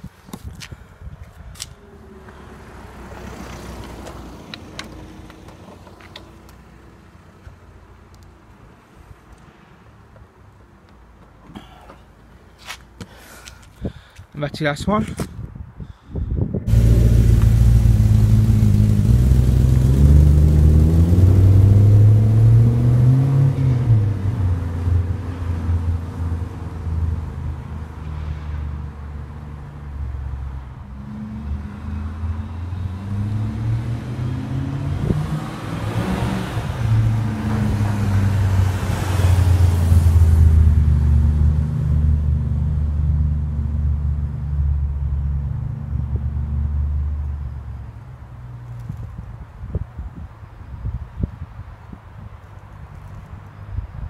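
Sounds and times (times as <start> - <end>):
car engine revving: 16.7 - 24.7.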